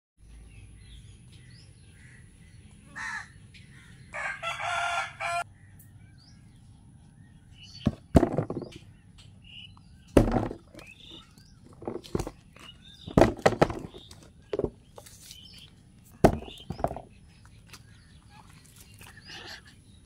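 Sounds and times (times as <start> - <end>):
footsteps on damp soil: 10.8 - 19.3.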